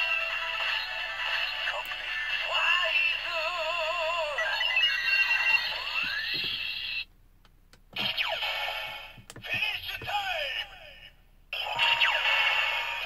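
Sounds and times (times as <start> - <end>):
toy electronic music and effects: 3.7 - 7.0, 11.6 - 13.0.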